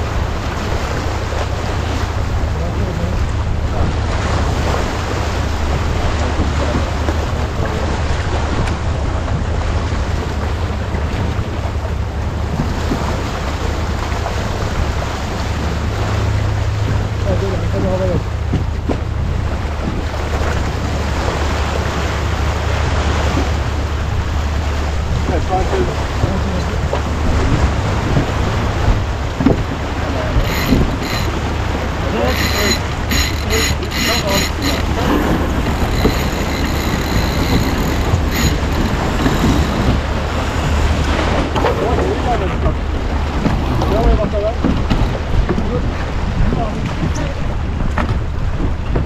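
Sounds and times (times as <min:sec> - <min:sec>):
water rushing along boat hull: 0:00.0 - 0:49.0
wind buffeting microphone: 0:00.0 - 0:49.0.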